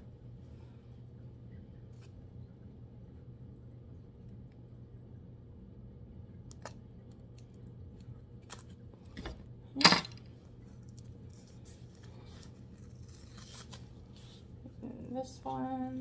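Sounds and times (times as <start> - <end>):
tape clicks and crinkles: 10.6 - 14.2.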